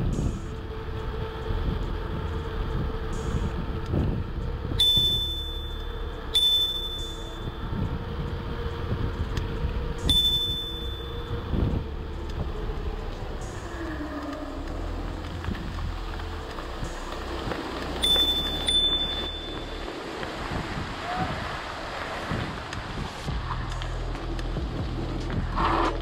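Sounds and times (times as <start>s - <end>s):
wind and tyres rushing: 0.0s - 26.0s
bicycle bell ding: 4.8s - 7.6s, 10.0s - 11.3s, 18.0s - 19.7s.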